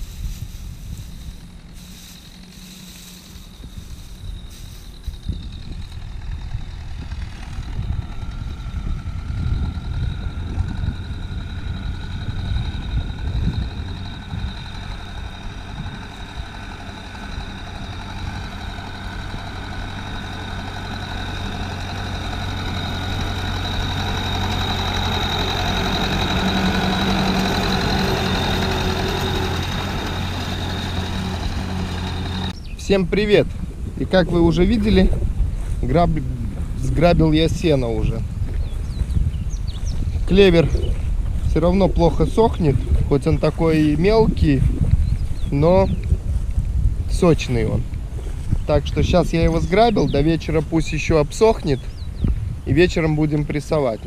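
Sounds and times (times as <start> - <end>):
wind on microphone: 0.0 - 19.5, 32.5 - 54.0
tractor diesel engine running: 0.0 - 54.0.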